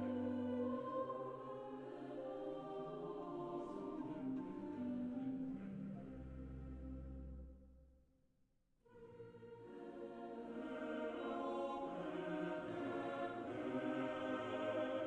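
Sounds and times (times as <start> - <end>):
slow sustained background music: 0.0 - 7.8.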